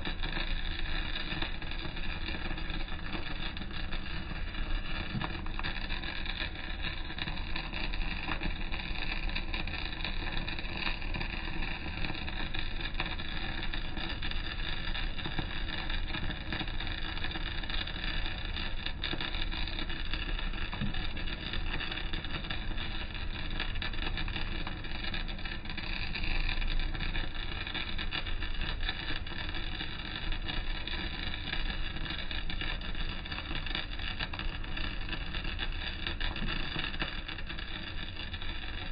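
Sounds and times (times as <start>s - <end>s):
welding arc crackling sizzle: 0.0s - 38.9s.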